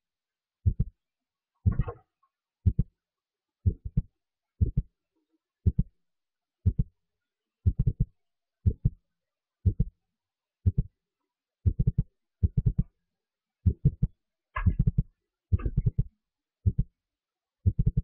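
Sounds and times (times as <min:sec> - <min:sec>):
deep thumping beat: 0:01.7 - 0:02.0, 0:02.7 - 0:02.9, 0:03.7 - 0:04.0, 0:04.6 - 0:04.9, 0:09.7 - 0:09.9, 0:11.7 - 0:12.9, 0:13.7 - 0:15.0, 0:15.6 - 0:16.1.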